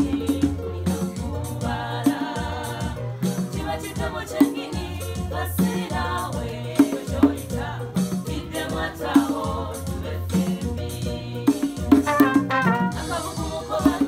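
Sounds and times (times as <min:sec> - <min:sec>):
band music with singing: 0:00.0 - 0:14.0
rattling percussion: 0:11.8 - 0:13.6
regular beat: 0:12.0 - 0:13.4
steady bass line: 0:12.0 - 0:13.4.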